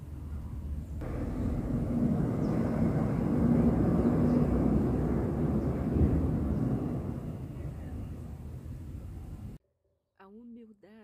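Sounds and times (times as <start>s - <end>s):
passing vehicle engine rumble: 0.0s - 9.6s.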